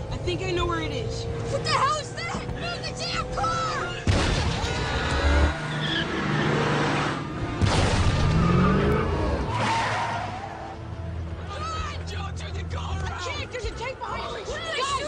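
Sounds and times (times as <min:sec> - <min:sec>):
tires screeching: 0:00.0 - 0:15.0
blasts and crashes: 0:04.0 - 0:05.0, 0:07.6 - 0:08.7.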